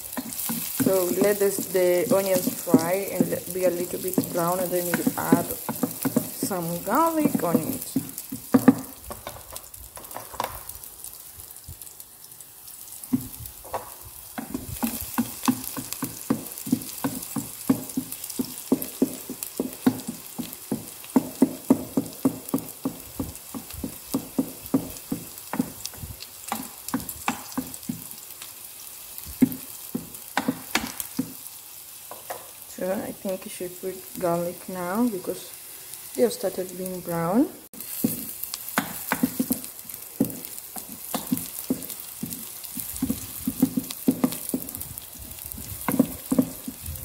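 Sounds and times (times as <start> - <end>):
onions sizzling in hot oil: 0.0 - 47.0
wooden spatula scraping pan: 0.1 - 10.4, 37.8 - 47.0.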